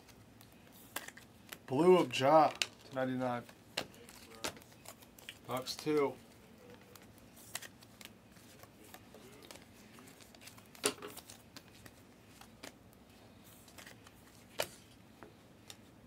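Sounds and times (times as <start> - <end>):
cards sliding: 6.8 - 12.8.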